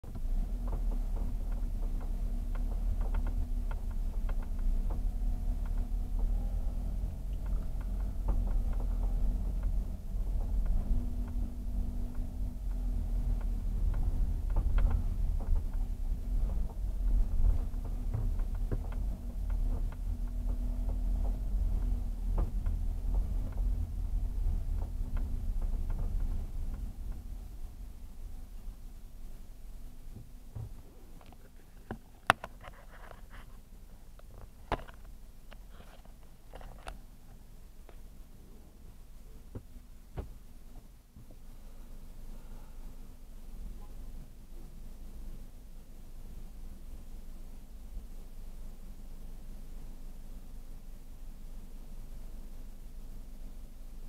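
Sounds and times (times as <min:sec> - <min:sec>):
constant hum: 0:00.0 - 0:54.0
engine and road rumble: 0:00.0 - 0:54.0
small clicks and rattles: 0:00.1 - 0:28.9, 0:30.2 - 0:38.1.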